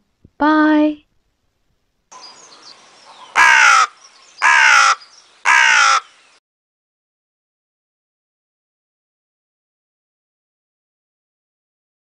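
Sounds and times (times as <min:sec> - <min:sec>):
faint background hiss: 0:00.0 - 0:04.4
crow cawing: 0:03.1 - 0:06.3.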